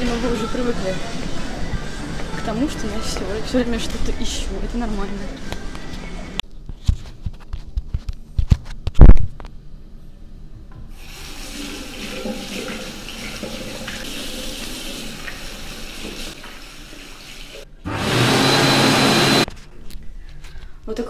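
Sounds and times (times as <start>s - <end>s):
electric hand dryer blowing: 17.9s - 19.5s.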